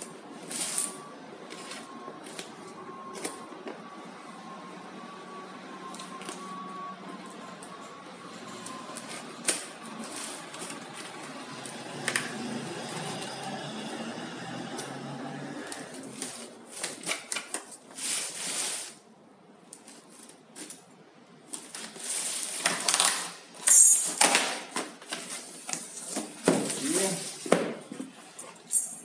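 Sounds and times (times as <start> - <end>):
cardboard tearing and rustling: 21.5 - 23.5.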